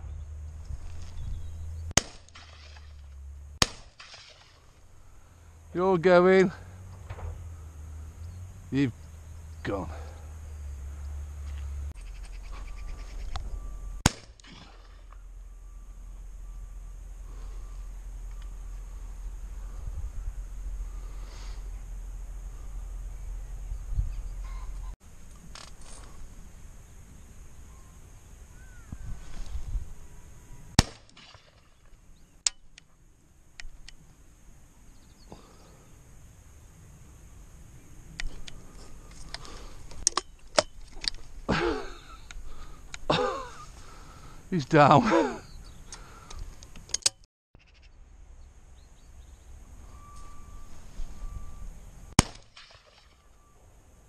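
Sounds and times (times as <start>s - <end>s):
sharp crack: 1.9s - 4.9s, 14.0s - 15.2s, 30.7s - 32.8s, 52.1s - 53.2s
shotgun shot: 2.0s - 2.7s, 3.6s - 4.4s, 14.0s - 15.0s, 30.8s - 31.6s, 52.2s - 53.1s
shotgun shot with echo: 14.0s - 14.8s, 52.2s - 52.8s.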